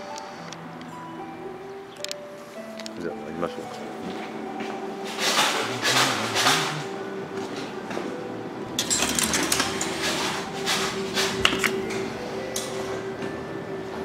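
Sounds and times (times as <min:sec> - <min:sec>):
ticket gate clicking and rattling: 0:05.1 - 0:07.0, 0:08.8 - 0:13.0.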